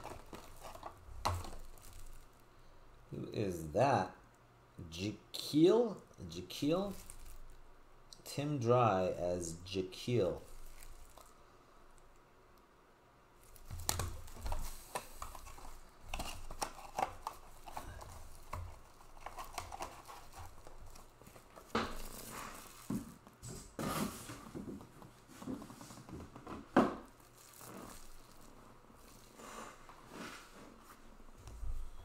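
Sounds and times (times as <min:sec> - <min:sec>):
plastic wrapping crinkling: 0:00.0 - 0:02.4, 0:06.6 - 0:07.7, 0:10.3 - 0:12.2, 0:13.4 - 0:23.4, 0:25.8 - 0:29.9.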